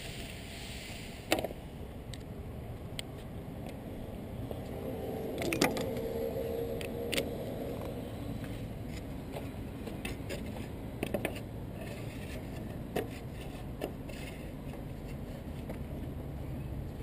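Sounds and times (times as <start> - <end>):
steady hum: 3.4 - 12.6.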